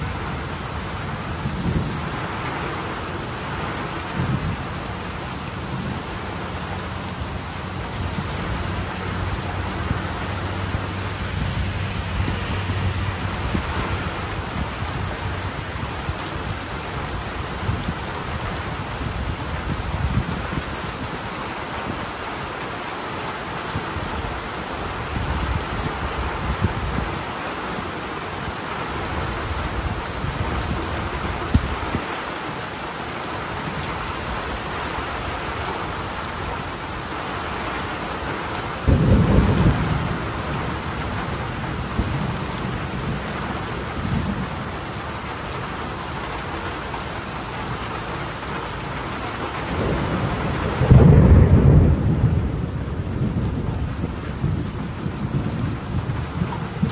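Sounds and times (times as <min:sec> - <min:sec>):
heavy rain falling: 0:00.0 - 0:56.9
thunder rumbling: 0:38.8 - 0:44.8, 0:49.6 - 0:56.9.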